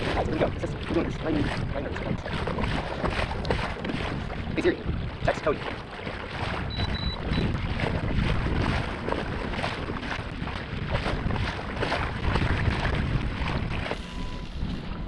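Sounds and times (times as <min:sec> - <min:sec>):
water splashing along hull: 0:00.0 - 0:15.0
wind buffeting microphone: 0:00.0 - 0:15.0
quick high beeps: 0:06.7 - 0:07.5.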